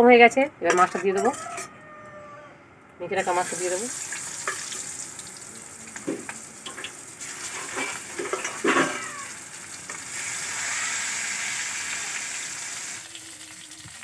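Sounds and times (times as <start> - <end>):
hot oil hissing: 3.2 - 14.0
fish frying sizzle: 3.3 - 14.0
brief pitched cry: 10.5 - 12.2.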